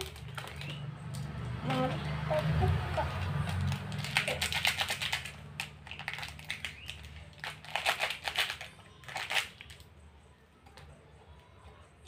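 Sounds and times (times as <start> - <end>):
plastic packet crinkling: 0.0 - 0.8, 3.4 - 9.8.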